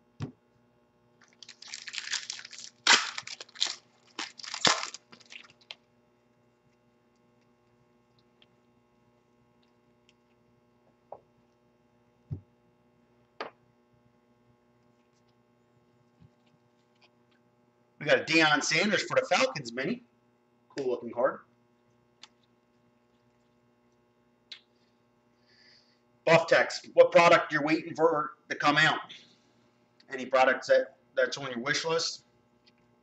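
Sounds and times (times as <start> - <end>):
foil wrapper crinkling: 1.2 - 5.8.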